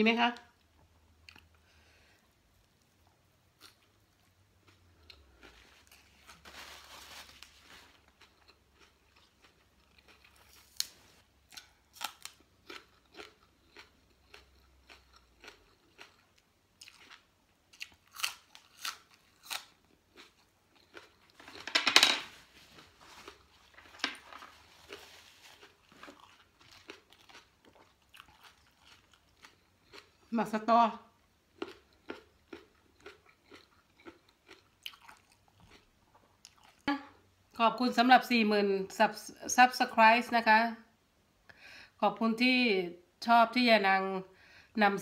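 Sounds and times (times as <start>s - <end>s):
chewing crunchy raw vegetables: 2.6s - 6.4s, 7.1s - 21.6s, 22.7s - 30.4s, 31.1s - 37.2s.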